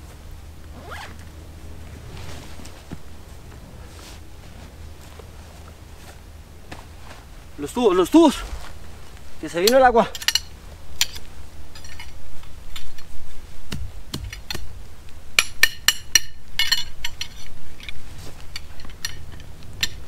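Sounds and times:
tent poles clinking together: 0.7s - 1.3s, 9.2s - 13.4s, 15.4s - 20.0s.

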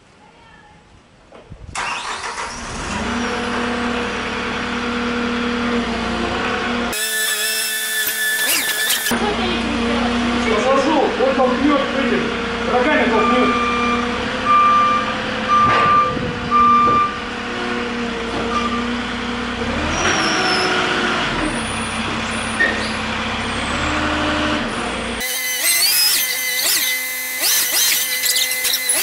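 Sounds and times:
forklift engine running: 1.8s - 29.0s
reversing alarm beeping: 13.1s - 17.2s.

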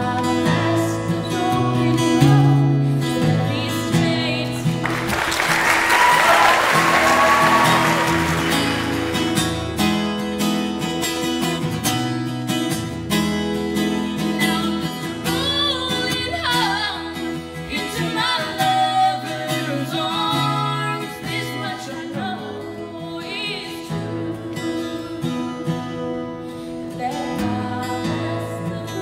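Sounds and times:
person singing: 0.0s - 5.1s, 6.2s - 9.3s, 14.3s - 25.9s
acoustic guitar: 0.0s - 29.0s.

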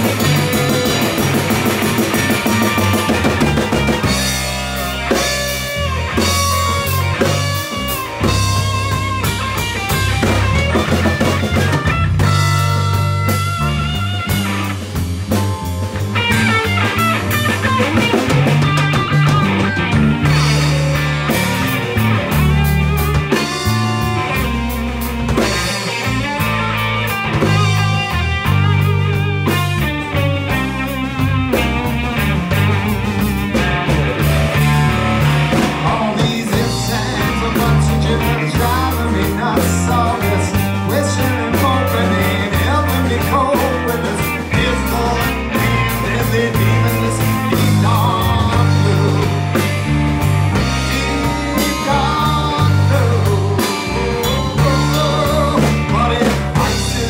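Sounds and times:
drum kit: 0.0s - 57.0s
electric bass: 0.0s - 57.0s
electric guitar: 0.0s - 57.0s
man singing: 35.2s - 57.0s.

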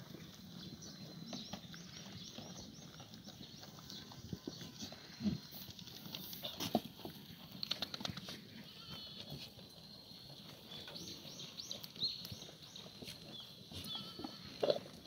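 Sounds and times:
quick run of clicks: 7.5s - 8.4s
goats calling: 8.6s - 9.6s, 13.0s - 15.0s.

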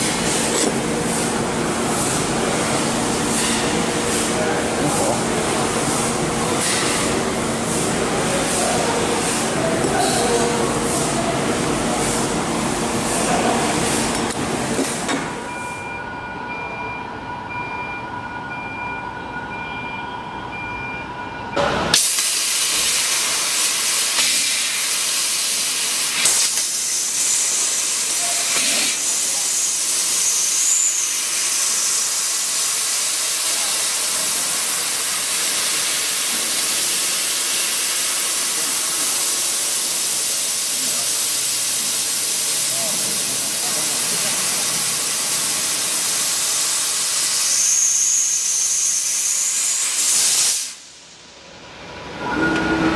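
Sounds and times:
gas jet hissing through cut: 21.9s - 50.9s.

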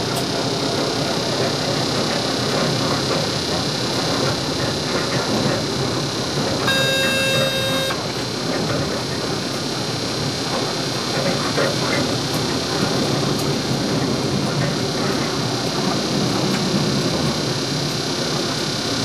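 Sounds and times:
locomotive cab running noise: 0.0s - 19.0s
high electronic beep: 6.7s - 8.0s.

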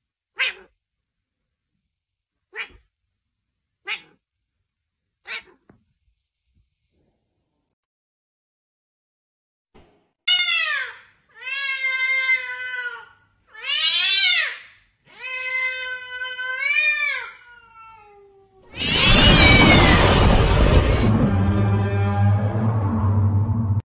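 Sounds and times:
cat meowing: 0.4s - 0.8s, 2.5s - 2.9s, 3.8s - 4.2s, 5.2s - 5.7s, 10.3s - 20.4s
noisy sound effect falling tone: 18.7s - 23.8s.

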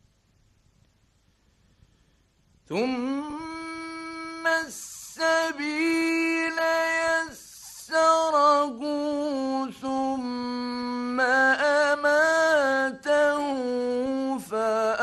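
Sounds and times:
man chanting: 2.7s - 15.0s.

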